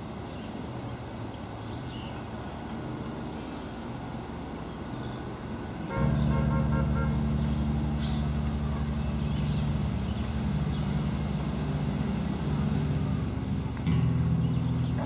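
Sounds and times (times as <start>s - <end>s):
engine idling: 5.9s - 15.0s.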